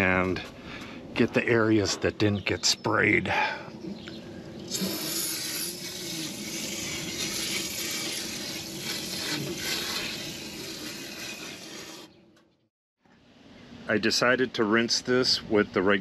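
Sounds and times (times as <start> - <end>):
aerosol can spraying hiss: 4.7 - 11.8.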